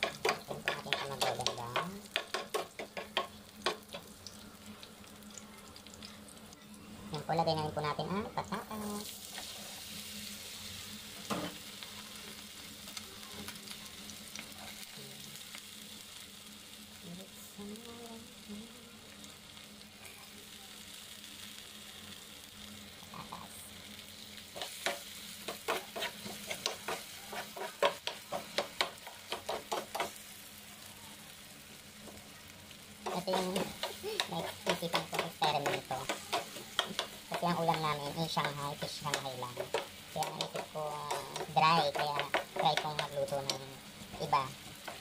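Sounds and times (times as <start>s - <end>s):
potatoes sizzling in hot oil: 0.0s - 45.0s
metal spoon scraping a pan: 24.5s - 30.1s, 33.0s - 43.6s.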